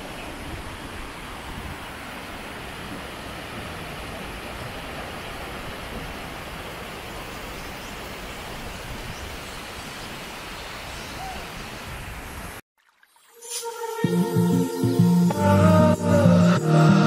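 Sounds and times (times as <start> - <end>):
flowing water hiss: 0.0 - 15.3
music: 13.3 - 17.0.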